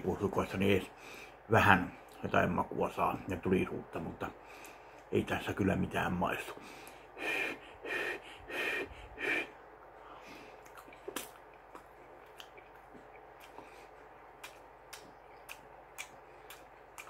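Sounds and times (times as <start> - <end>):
mouth and breath sounds: 6.6 - 17.0
chewing with wet clicks: 10.6 - 17.0.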